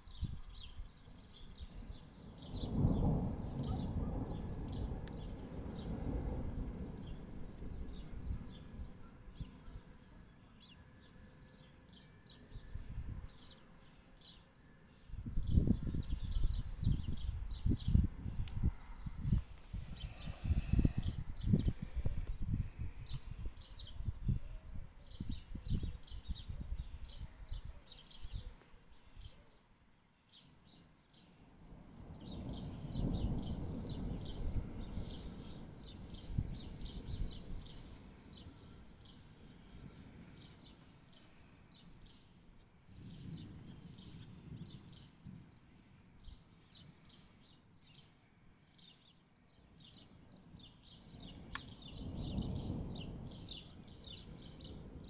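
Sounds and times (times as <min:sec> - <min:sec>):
small birds chirping: 0:00.0 - 0:55.0
distant thunder rumbling: 0:01.6 - 0:10.3, 0:31.7 - 0:41.6, 0:51.0 - 0:55.0.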